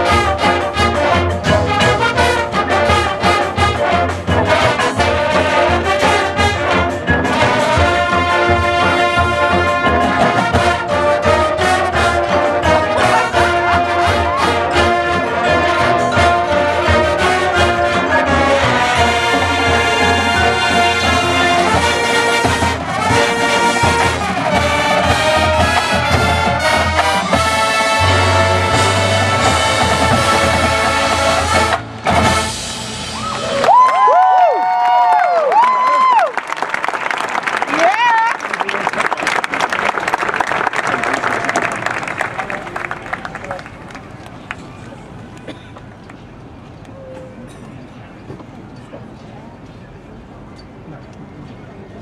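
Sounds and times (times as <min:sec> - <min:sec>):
mallet percussion: 0:00.0 - 0:33.5
brass playing: 0:00.0 - 0:33.6
keyboards and electric bass: 0:00.0 - 0:33.9
drums: 0:00.0 - 0:35.0.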